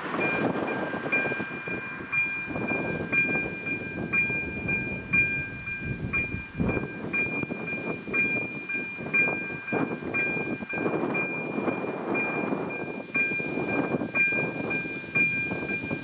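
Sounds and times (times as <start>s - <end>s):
two-tone crossing warning bell: 0.0s - 16.0s
wind rumbling on microphone: 0.0s - 16.0s.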